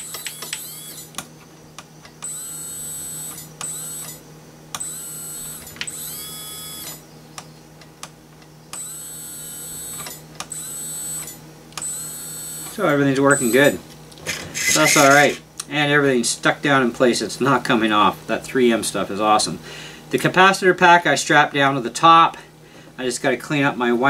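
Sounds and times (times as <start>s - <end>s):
electric motor whine: 0.0s - 1.2s, 2.2s - 4.2s, 4.8s - 7.1s, 8.7s - 15.4s.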